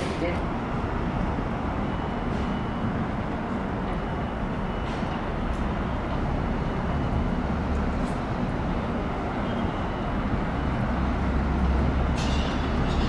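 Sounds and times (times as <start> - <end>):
subway train wheels rumbling: 0.0 - 13.0.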